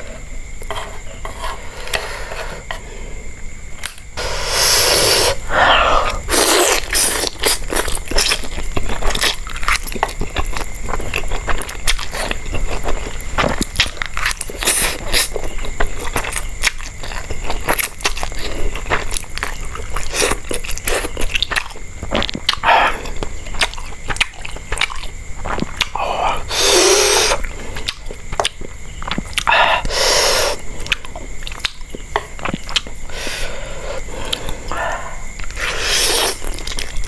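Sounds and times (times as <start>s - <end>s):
hissing bursts: 4.2s - 7.3s
chewing with crunchy clicks: 6.0s - 26.5s, 27.3s - 29.9s, 30.5s - 37.0s.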